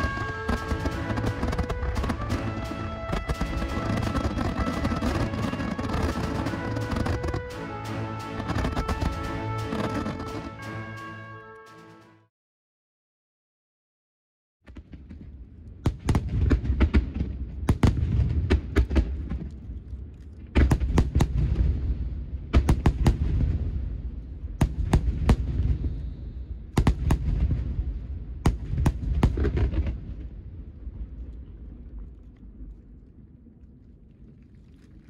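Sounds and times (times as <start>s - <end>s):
fireworks cracking: 0.0s - 11.2s.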